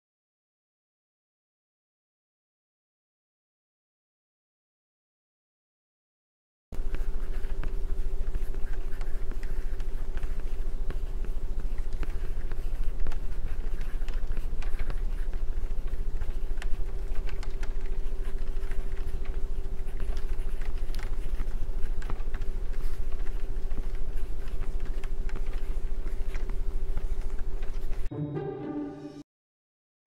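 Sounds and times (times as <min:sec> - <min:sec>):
background hum and low rumble: 0:06.8 - 0:28.1
faint clicks and ticks: 0:06.8 - 0:28.1.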